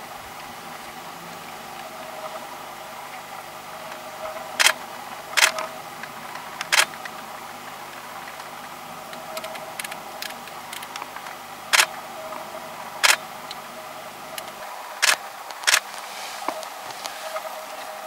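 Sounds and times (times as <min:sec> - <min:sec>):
steady hum: 0:00.0 - 0:18.0
faint ticks: 0:07.9 - 0:12.4
short sharp clicks: 0:11.7 - 0:12.0.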